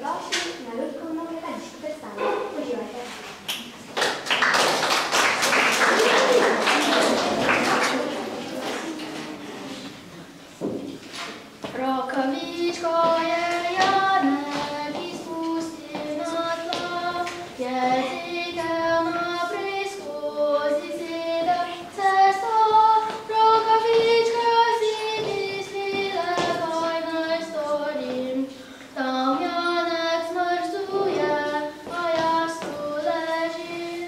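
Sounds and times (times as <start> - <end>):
child singing: 11.7 - 34.0.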